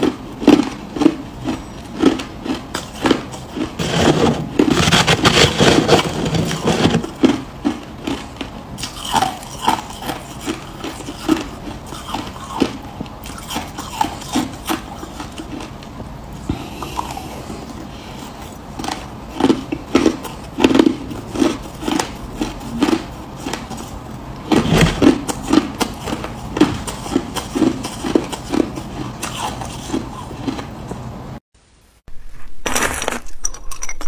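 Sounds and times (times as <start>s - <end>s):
crushed ice crunching: 0.6s - 8.2s, 32.3s - 34.0s.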